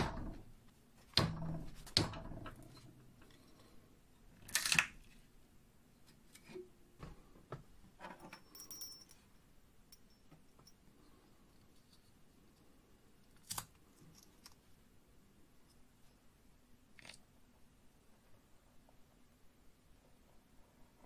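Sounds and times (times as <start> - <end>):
metal knocks and clunks: 0.0 - 3.4.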